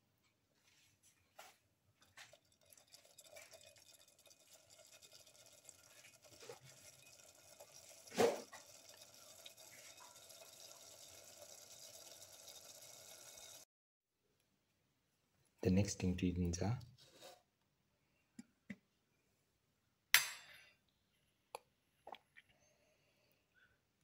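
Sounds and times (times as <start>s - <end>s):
gravy bubbling and sizzling: 1.9s - 13.7s
spatula scraping pan: 8.0s - 8.8s.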